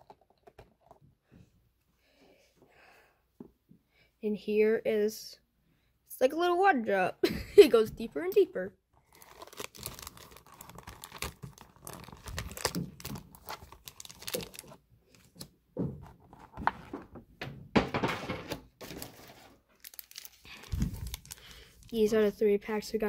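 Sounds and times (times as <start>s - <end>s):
foil packs crinkling: 9.0s - 15.5s, 18.8s - 22.3s.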